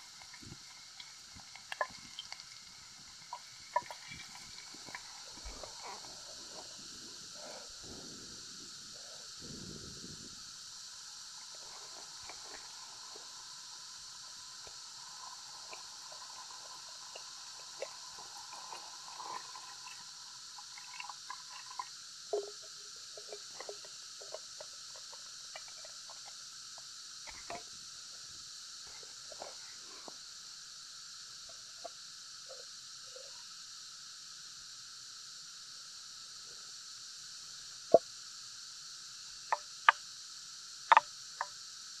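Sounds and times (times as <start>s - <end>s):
fish simmering and bubbling: 0.0s - 35.7s, 37.9s - 41.9s
high background hiss: 0.0s - 42.0s
water pouring: 14.7s - 26.4s.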